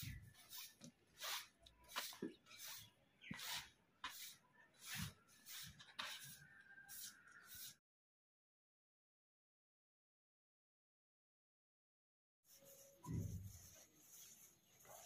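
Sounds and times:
broom sweeping ground: 0.0s - 7.8s, 12.5s - 15.0s
broom swishing against mat: 0.0s - 7.8s, 12.5s - 15.0s.

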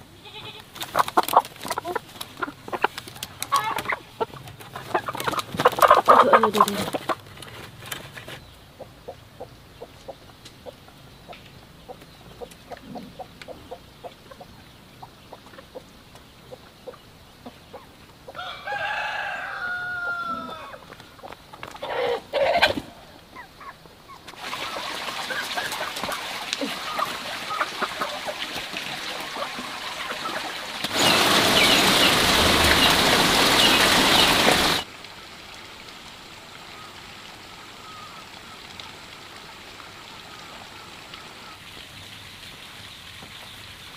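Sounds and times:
noisy hiss with chirps: 0.0s - 43.9s
straw rustling and crackling: 0.6s - 8.5s
rooster crowing: 18.4s - 20.8s.

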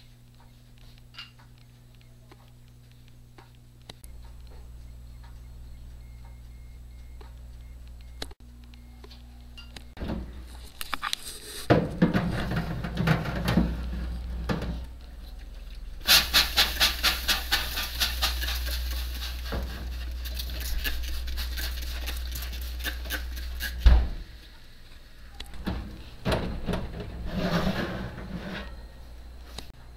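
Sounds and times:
baking tray clattering: 11.6s - 14.8s, 16.1s - 20.0s, 25.6s - 28.9s
spray bottle squirting water: 16.0s - 19.6s.

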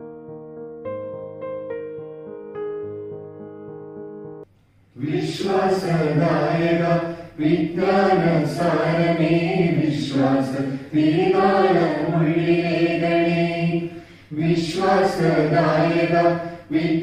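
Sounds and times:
group singing a hymn: 5.0s - 17.0s.

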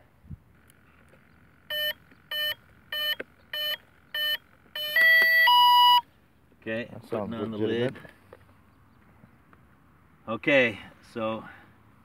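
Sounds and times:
longer electronic tones: 1.7s - 6.0s
short electronic beeps: 1.7s - 6.0s.

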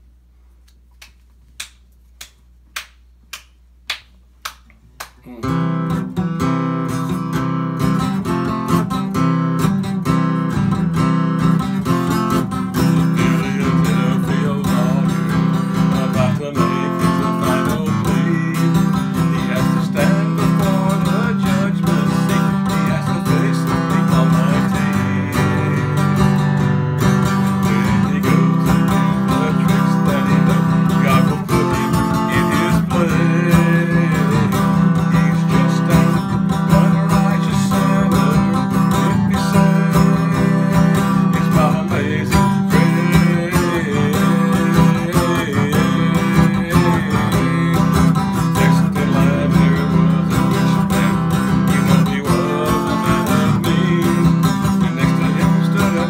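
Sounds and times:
acoustic guitar strumming: 5.3s - 56.0s
man singing: 11.8s - 56.0s.

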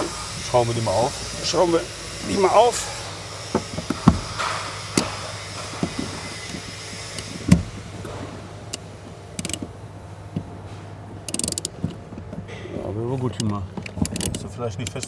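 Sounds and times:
steady low hum: 0.0s - 15.0s
ratchet clicking: 3.4s - 7.8s, 8.7s - 9.7s, 11.3s - 11.8s, 13.4s - 15.0s
socket knocking on metal screws: 11.3s - 12.4s.

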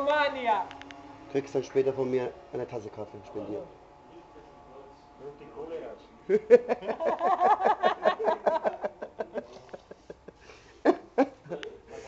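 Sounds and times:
pulsed laughter: 6.3s - 12.0s.

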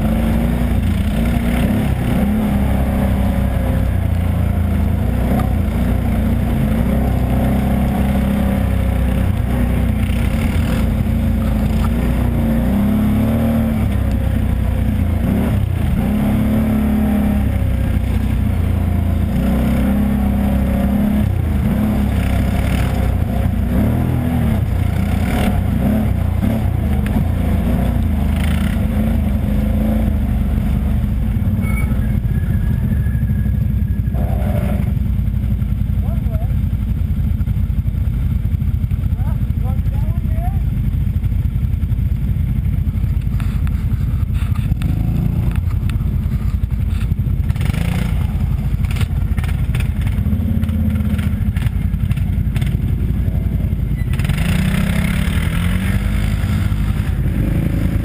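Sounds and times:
atv engine revving: 0.0s - 58.0s
knocks and clatter over bumps: 9.2s - 12.3s, 43.0s - 53.2s.

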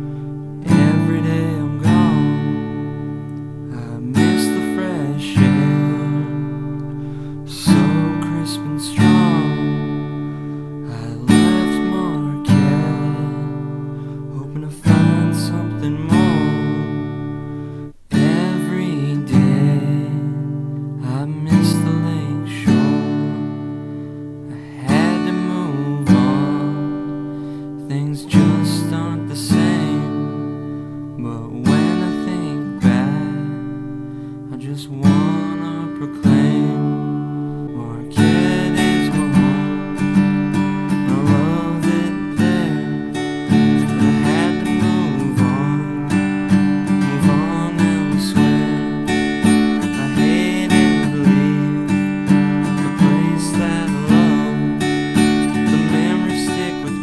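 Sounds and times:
acoustic guitar strumming: 0.0s - 57.0s.

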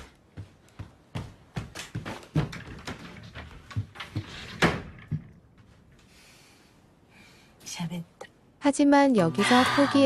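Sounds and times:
footsteps on wooden floor: 0.0s - 4.4s.

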